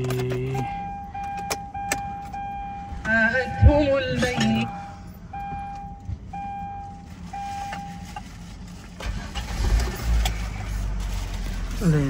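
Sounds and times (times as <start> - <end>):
car engine cranking and starting: 0.0 - 12.0
dashboard warning chime beeps: 0.1 - 8.1.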